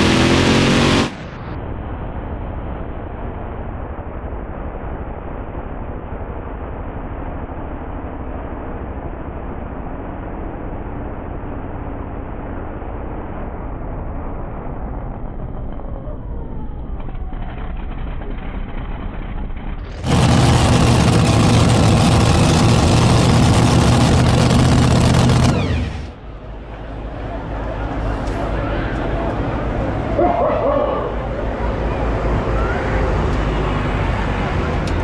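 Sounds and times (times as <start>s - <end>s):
tractor engines running hard: 0.0s - 1.6s, 15.5s - 35.0s.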